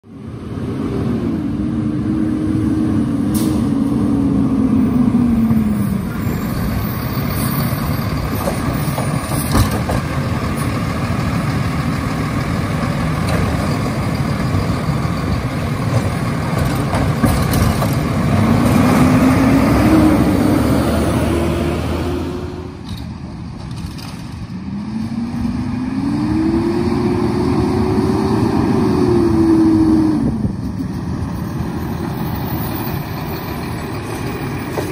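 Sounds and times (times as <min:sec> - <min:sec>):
garbage truck diesel engine revving: 0:18.0 - 0:22.8.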